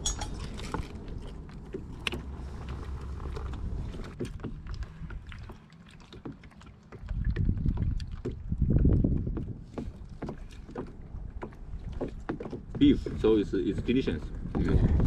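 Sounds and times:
wind rumbling on microphone: 7.0s - 15.0s.

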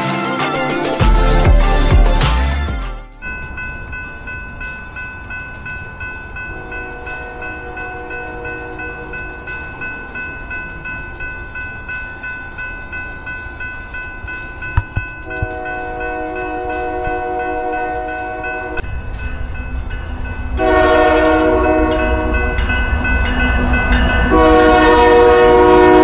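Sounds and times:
railroad crossing bell ringing: 3.1s - 26.0s
train horn chord: 6.5s - 9.1s, 15.2s - 18.8s, 20.6s - 22.6s, 24.3s - 26.0s
sharp knocks: 14.8s - 15.5s.

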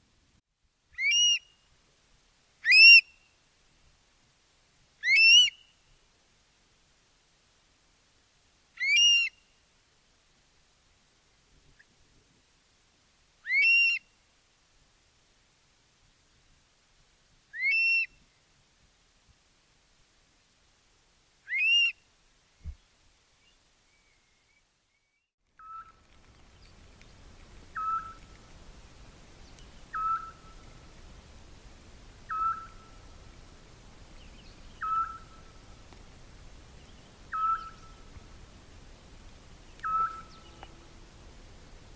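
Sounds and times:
bird whistled call: 1.0s - 1.6s, 8.8s - 9.4s, 13.4s - 14.0s, 17.6s - 18.2s, 21.5s - 22.0s, 27.8s - 28.2s, 29.9s - 30.6s, 32.3s - 33.0s, 34.4s - 35.4s, 37.3s - 38.0s, 39.8s - 40.6s.

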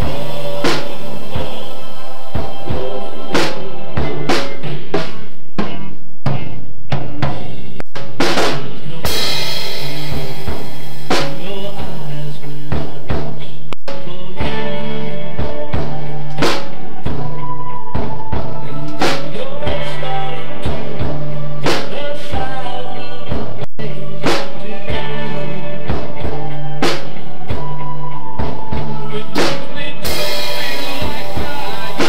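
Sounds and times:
drum kit playing rock beat: 0.0s - 32.0s
cymbal crashes: 9.1s - 13.3s, 30.0s - 32.0s.

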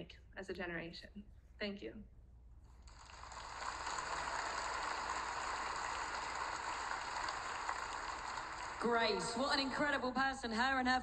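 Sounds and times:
large audience applauding: 2.9s - 9.8s.

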